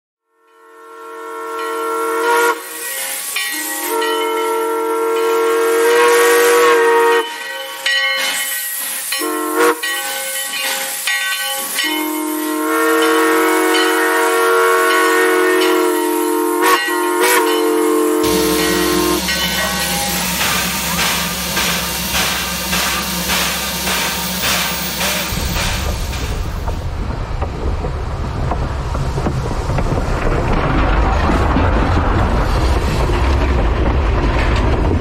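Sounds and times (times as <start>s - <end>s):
steam whistle blasts: 0.3s - 7.5s, 9.1s - 10.2s, 11.7s - 25.4s
steam hissing: 2.2s - 4.2s, 4.8s - 27.1s.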